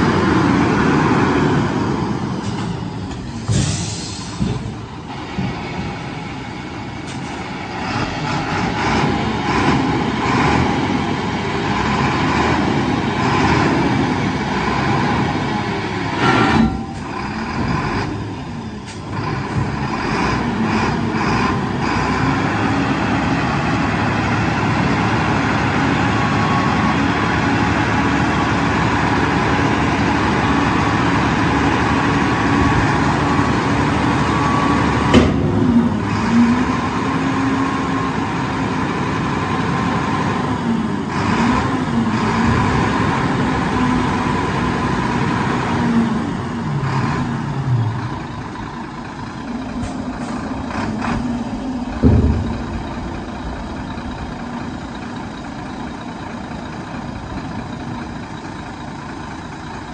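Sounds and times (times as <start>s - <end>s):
truck diesel engine running: 0.0s - 59.9s
air hiss: 3.4s - 4.4s.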